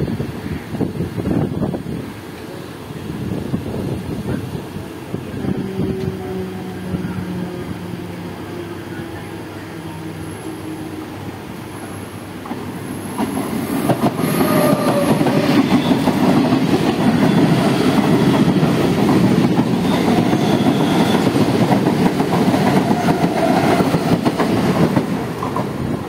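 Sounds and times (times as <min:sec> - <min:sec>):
train wheels clacking over rail joints: 0:12.4 - 0:26.0.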